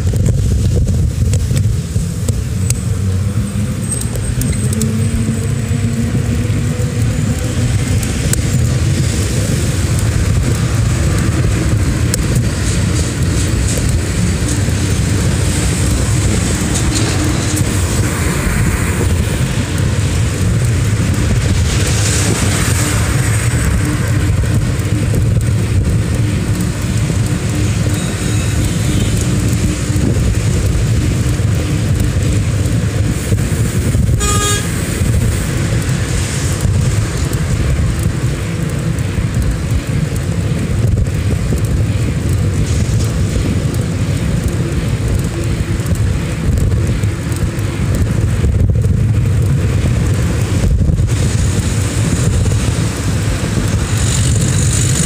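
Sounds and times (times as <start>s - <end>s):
road traffic rumble: 0.0s - 55.0s
wind: 0.0s - 55.0s
car horn toot: 34.1s - 34.8s.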